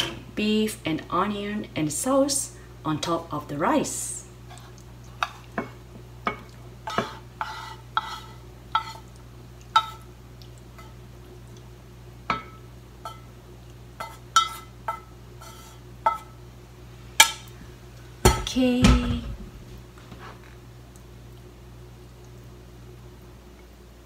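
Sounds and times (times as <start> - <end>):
chopsticks tapping on frying pan: 9.7 - 10.0.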